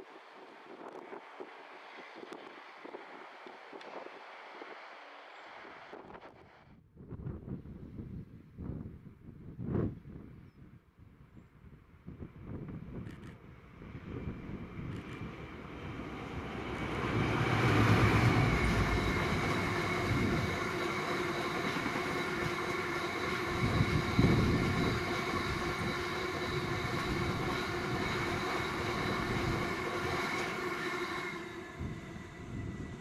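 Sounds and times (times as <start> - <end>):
diesel locomotive passing: 13.4 - 33.0
wheels ringing on rails: 14.0 - 33.0.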